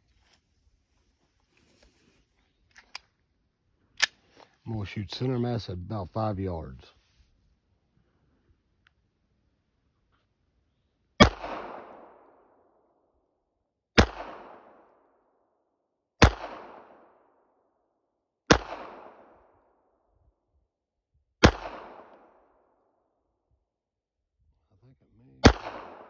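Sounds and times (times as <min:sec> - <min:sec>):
pistol shots with echo: 0:11.2 - 0:12.7, 0:14.0 - 0:15.0, 0:16.2 - 0:17.3, 0:18.5 - 0:19.5, 0:21.4 - 0:22.5, 0:25.4 - 0:26.0.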